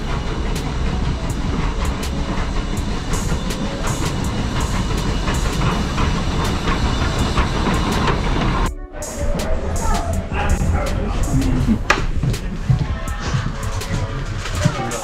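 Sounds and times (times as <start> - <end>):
sharp clicks of train wheels: 0.0 - 8.7
steam locomotive rumble: 0.0 - 15.0.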